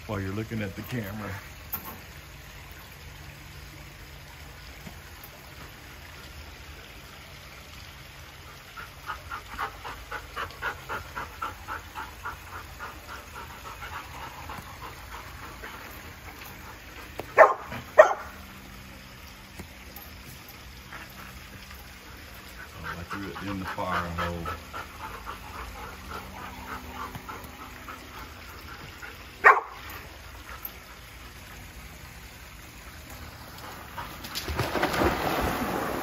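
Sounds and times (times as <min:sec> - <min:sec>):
dog panting: 0:08.7 - 0:17.8, 0:20.9 - 0:31.6
dog barking: 0:17.3 - 0:18.3, 0:29.4 - 0:29.8.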